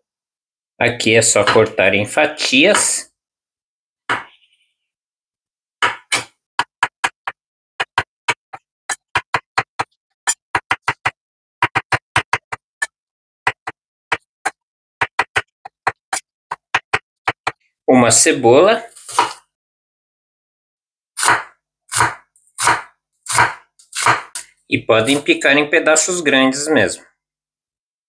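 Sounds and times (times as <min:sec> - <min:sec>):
knife tapping on wooden board: 0:05.8 - 0:10.0, 0:10.6 - 0:12.6, 0:13.5 - 0:17.6.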